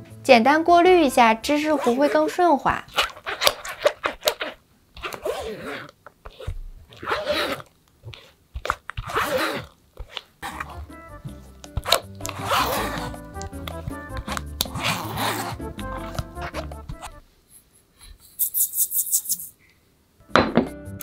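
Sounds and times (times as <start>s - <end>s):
background music: 0.0s - 2.6s, 10.4s - 17.2s, 20.2s - 21.0s
spatula scraping through sieve: 1.4s - 8.4s, 9.0s - 17.2s.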